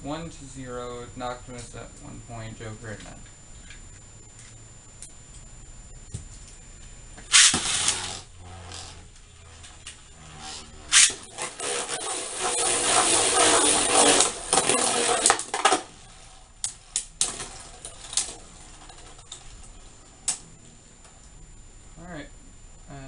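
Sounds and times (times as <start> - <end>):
spinning tops clattering and grinding: 10.9 - 15.9.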